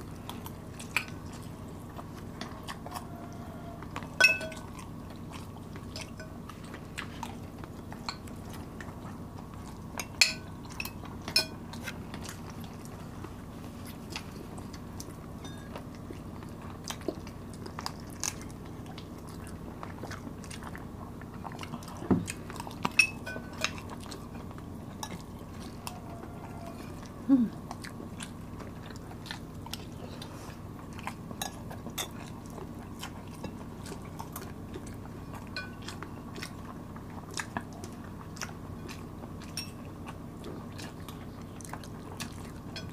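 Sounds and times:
chewing and biting food: 0.0 - 42.9
low room hum: 0.0 - 42.9
metal spoons clinking on glass: 4.2 - 4.6, 10.1 - 11.6, 39.6 - 39.8.

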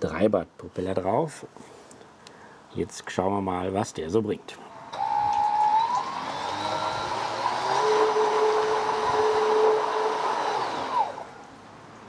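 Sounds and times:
electric motor whine: 4.8 - 11.4.

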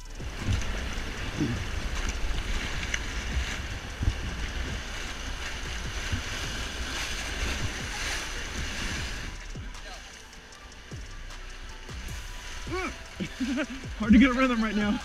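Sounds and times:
wind buffeting microphone: 0.0 - 9.8
rushing river rapids: 0.0 - 15.0
water splashing against raft: 0.0 - 15.0.

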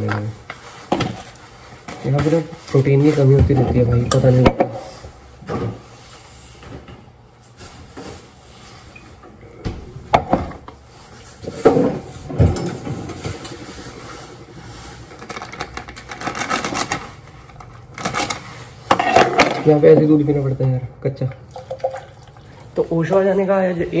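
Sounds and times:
plastic bag crinkling: 13.9 - 18.7.

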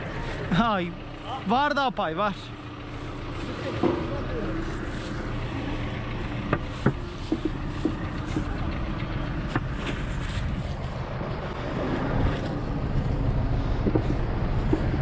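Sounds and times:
tractor engine running: 0.0 - 15.0.

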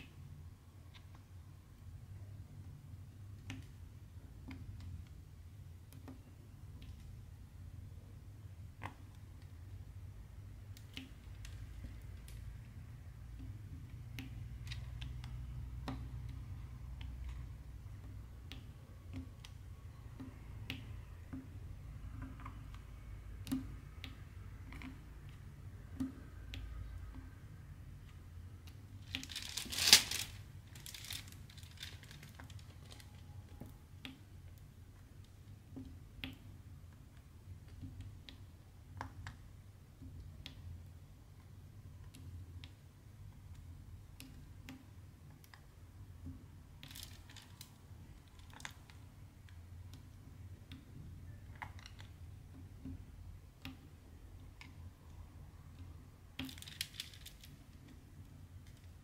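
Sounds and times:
soft clicks and taps: 10.6 - 27.4
plastic rustling and crinkling: 29.0 - 33.3, 46.8 - 49.0, 56.4 - 58.0.

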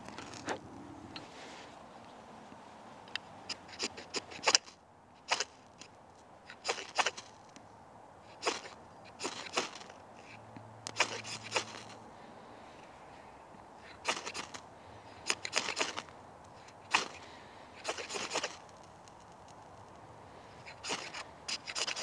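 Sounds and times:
knife rasping on fire steel: 20.7 - 22.0.

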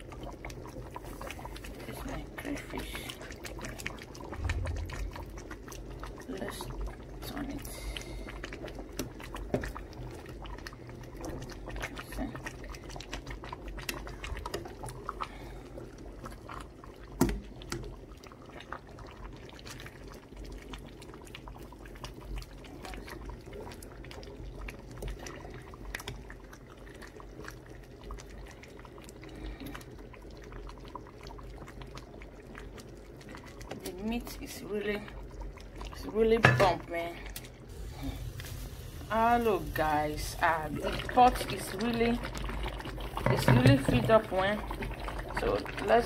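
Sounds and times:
thick stew bubbling: 0.0 - 46.0.

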